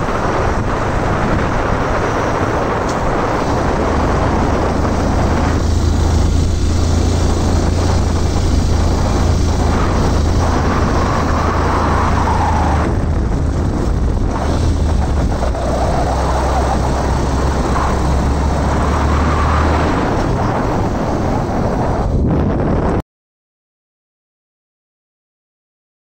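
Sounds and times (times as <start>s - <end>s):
motorcycle engine running: 0.0s - 12.2s
wind rushing over microphone: 0.0s - 23.0s.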